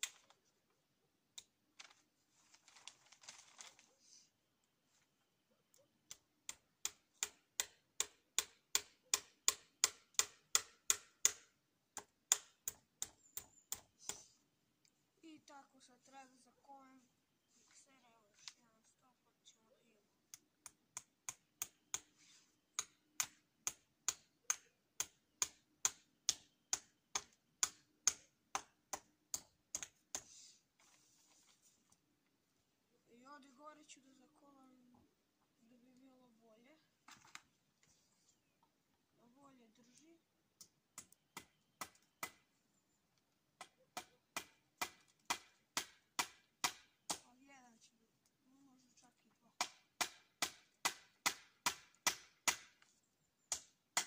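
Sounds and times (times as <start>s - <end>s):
hammer striking nails into wood: 6.5s - 13.9s, 44.0s - 47.2s, 49.6s - 52.8s
hammer driving nails into wood: 49.6s - 52.8s.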